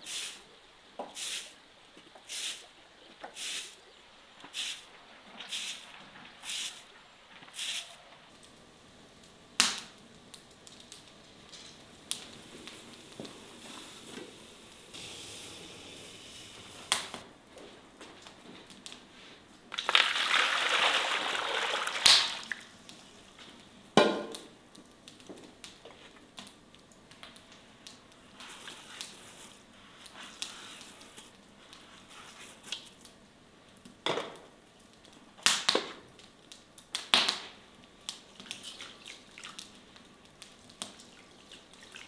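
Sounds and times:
broom sweeping snow: 0.0 - 0.4, 1.2 - 1.6, 2.3 - 2.6, 3.4 - 3.8, 4.5 - 4.9, 5.5 - 6.8, 7.5 - 8.0
water pouring into pot: 19.7 - 22.7.

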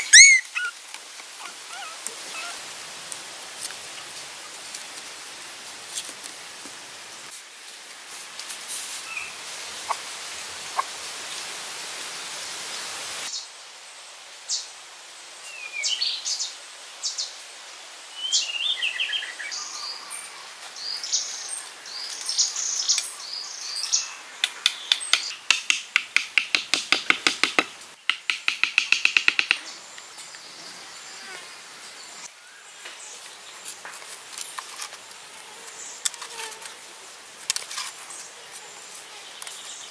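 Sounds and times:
birds chirping: 0.0 - 0.7
steady hiss: 0.5 - 39.9.

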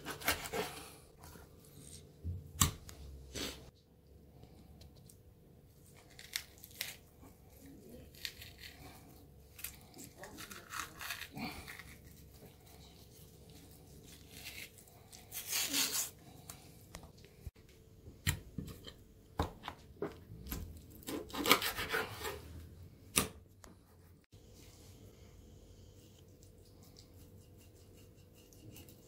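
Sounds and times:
fish skin tearing: 6.0 - 7.2, 8.0 - 12.4.

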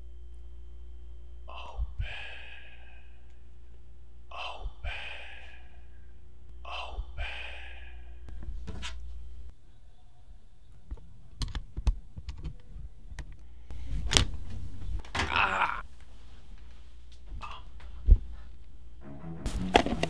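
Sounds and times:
low steady hum: 0.0 - 20.0
man sighing: 1.5 - 3.3, 4.3 - 6.1.

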